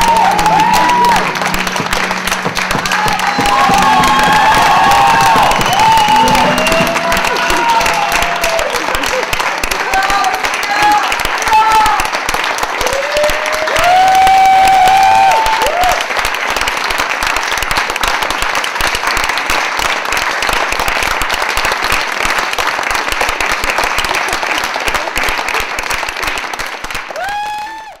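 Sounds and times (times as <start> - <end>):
high-pitched call from crowd: 0.0 - 9.2
audience applauding: 0.0 - 28.0.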